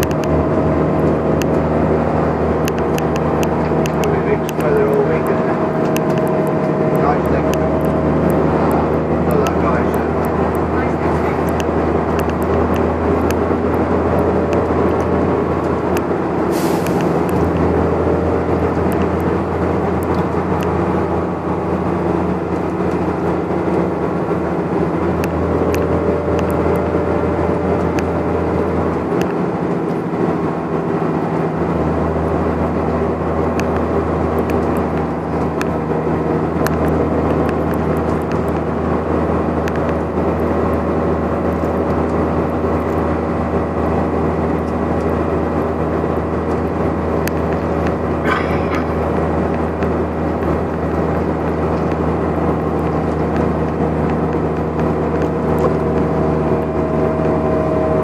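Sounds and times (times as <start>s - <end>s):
bus diesel engine droning: 0.0s - 58.0s
road noise: 0.0s - 58.0s
short air hiss: 16.5s - 17.2s.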